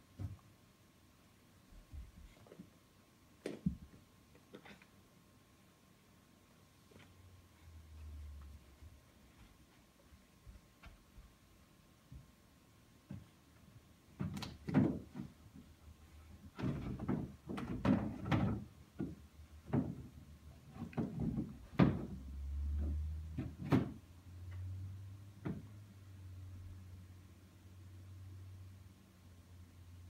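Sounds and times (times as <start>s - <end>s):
knocks in plastic play castle: 14.2s - 15.4s, 16.5s - 22.2s.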